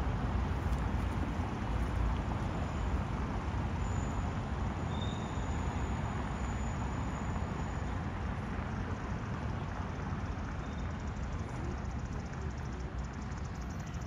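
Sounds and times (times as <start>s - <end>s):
road traffic rumble: 0.0s - 14.0s
faint high chirp: 3.8s - 8.0s.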